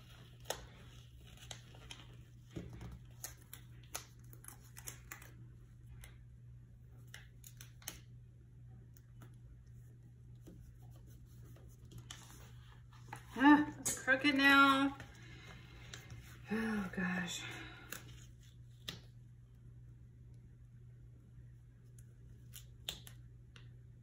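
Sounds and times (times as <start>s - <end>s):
paper rustling: 0.0s - 5.4s, 10.4s - 13.4s
low steady hum: 0.0s - 24.0s.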